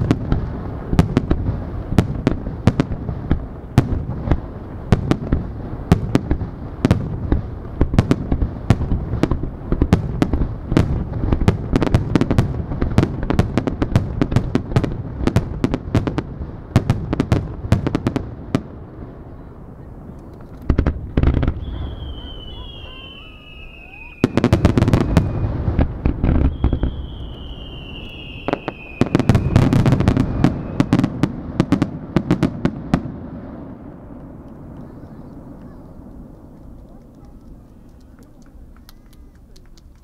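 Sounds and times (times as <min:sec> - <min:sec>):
firework bangs: 0:00.0 - 0:40.0.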